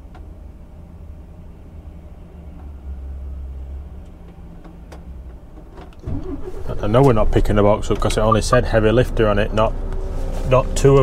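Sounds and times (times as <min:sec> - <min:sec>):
diesel truck engine idling: 0:05.9 - 0:09.8.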